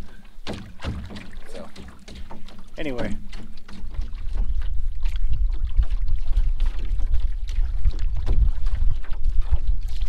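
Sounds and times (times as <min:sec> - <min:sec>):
waves lapping against canoe hull: 0:00.0 - 0:10.0
wind buffeting microphone: 0:02.3 - 0:10.0.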